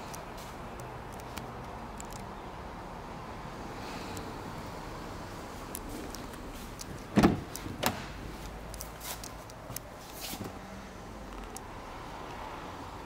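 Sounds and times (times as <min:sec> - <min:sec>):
car door latch clunk: 0:07.0 - 0:08.2.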